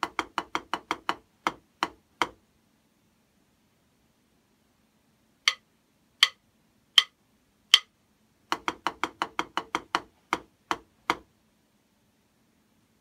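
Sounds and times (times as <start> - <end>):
drumstick count-in clicks: 6.2 - 6.4, 7.0 - 7.9.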